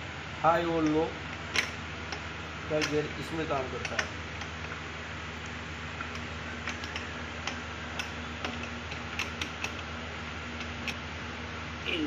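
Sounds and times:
light metallic clicks and taps: 2.8s - 3.1s, 3.8s - 4.8s.

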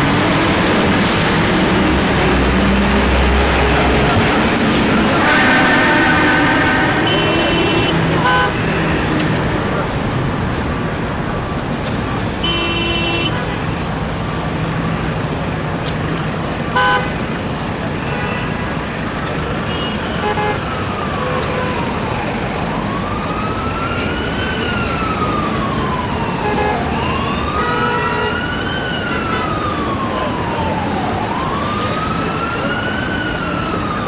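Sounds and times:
emergency siren wailing: 0.0s - 14.5s, 18.6s - 34.0s
city street traffic: 0.0s - 34.0s
vehicle horn honks: 5.1s - 8.8s, 12.4s - 13.6s, 16.8s - 17.1s, 19.7s - 20.6s.

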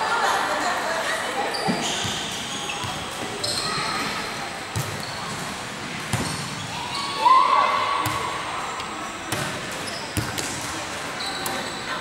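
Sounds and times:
loud shout: 6.8s - 8.4s.

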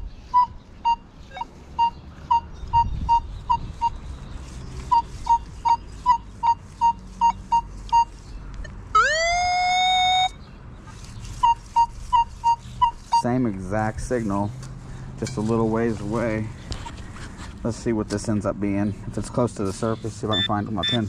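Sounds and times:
short beeps: 5.0s - 8.1s, 20.3s - 21.0s
metal detector rising tone: 8.9s - 10.4s.

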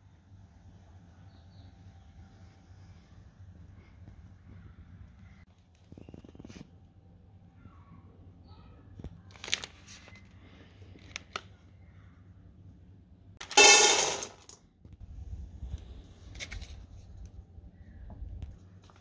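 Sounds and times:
plastic packaging crinkling: 9.3s - 10.4s.

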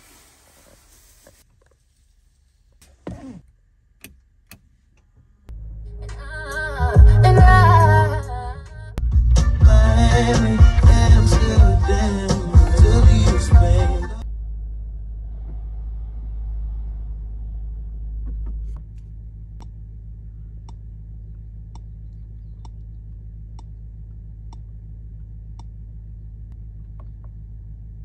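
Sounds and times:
low car cabin rumble: 0.0s - 28.0s
steering wheel button clicks: 2.8s - 5.1s.

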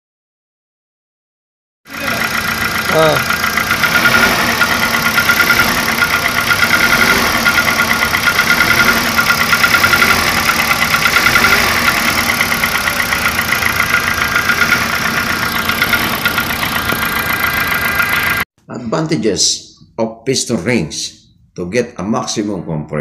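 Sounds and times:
car engine idling with ticking: 1.9s - 18.4s.

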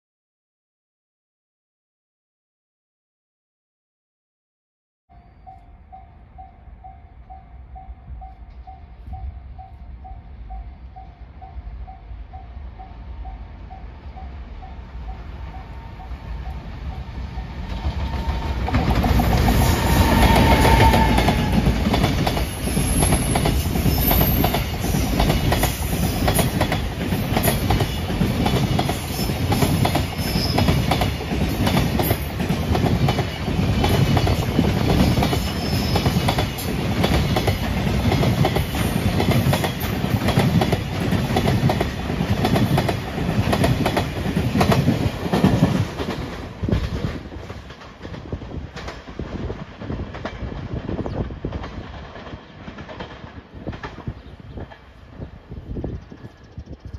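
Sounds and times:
freight train wheels clattering: 17.4s - 55.0s.

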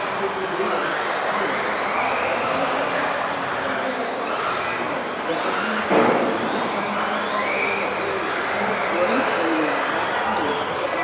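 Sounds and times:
electric rc car motors whining: 0.0s - 11.0s
sharp knock: 5.9s - 6.4s.

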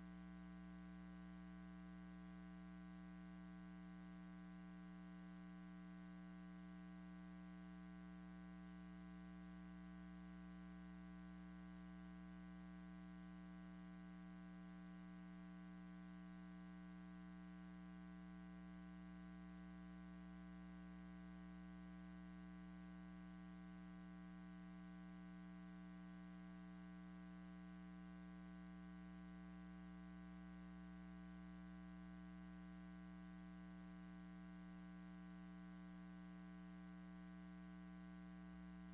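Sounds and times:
low electrical hum: 0.0s - 38.9s.

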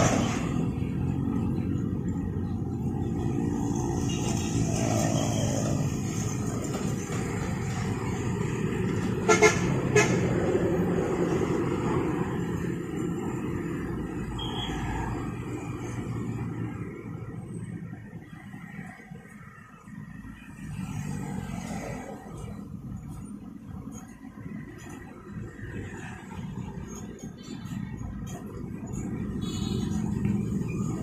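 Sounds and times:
vehicle engines passing: 0.0s - 31.0s
vehicle horn toots: 9.3s - 10.2s.

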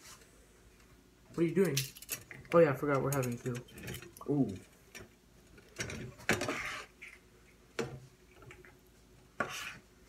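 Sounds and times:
utensil scraping pan: 5.8s - 7.2s, 9.3s - 9.9s.

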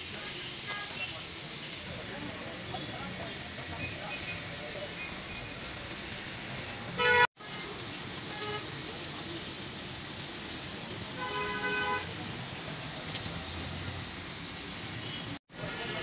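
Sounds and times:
steady hiss: 0.0s - 15.4s
street traffic: 0.0s - 16.0s
car horn tooting: 7.0s - 7.7s, 8.3s - 8.7s, 11.2s - 12.1s.

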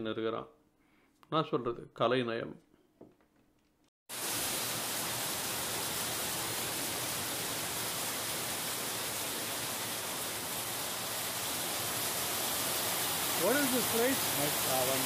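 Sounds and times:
steady rain falling: 4.1s - 15.0s.

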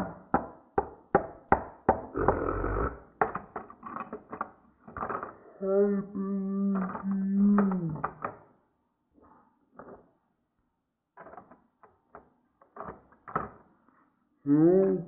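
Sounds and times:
plastic bricks knocking on wood: 0.0s - 5.4s, 6.7s - 8.5s, 11.2s - 13.7s.

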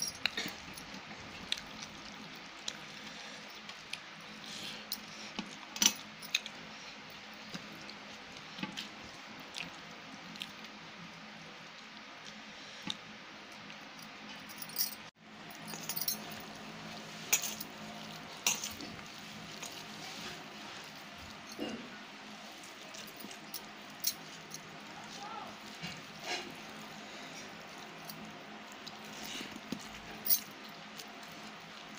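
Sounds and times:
fingers squishing rice and curry: 16.4s - 31.9s.

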